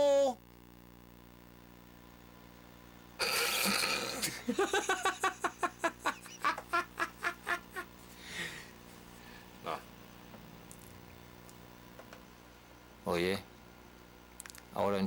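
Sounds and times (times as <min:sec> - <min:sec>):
man laughing loudly: 0:03.4 - 0:08.0.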